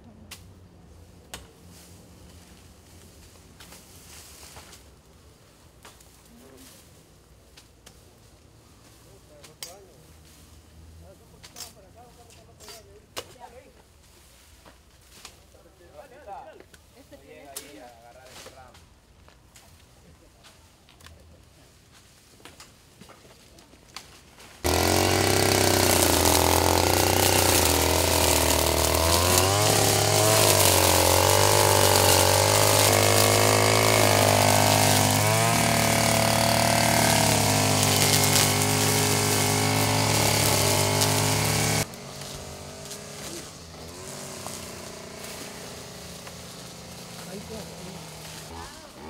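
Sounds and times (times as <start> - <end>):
brush cutter engine running: 24.6 - 49.0.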